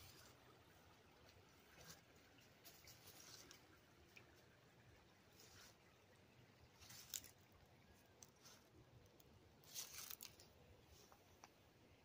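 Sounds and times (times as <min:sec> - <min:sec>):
footsteps in fallen leaves: 0:09.6 - 0:10.4.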